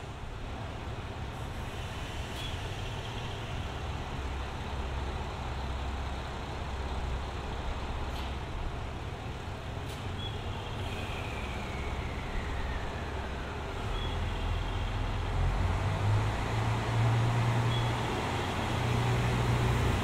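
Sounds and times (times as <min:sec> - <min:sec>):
diesel railcar engine rumbling: 0:00.0 - 0:20.0.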